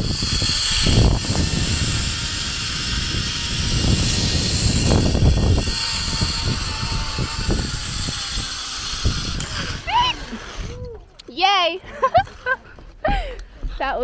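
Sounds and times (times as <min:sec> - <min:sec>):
pulleys rolling on steel cable: 0:00.0 - 0:10.9
wind buffeting microphone: 0:00.0 - 0:11.2.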